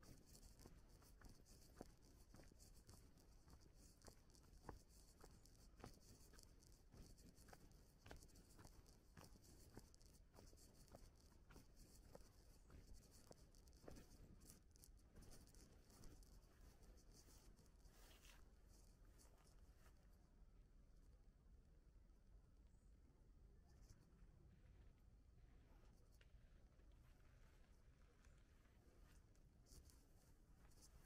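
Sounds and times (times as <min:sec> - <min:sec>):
faint footsteps walking: 0:00.0 - 0:20.1, 0:25.9 - 0:31.0.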